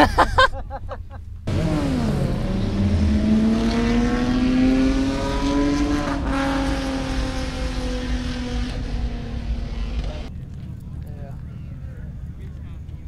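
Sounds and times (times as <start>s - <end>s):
vehicle engine revving: 1.4s - 13.0s.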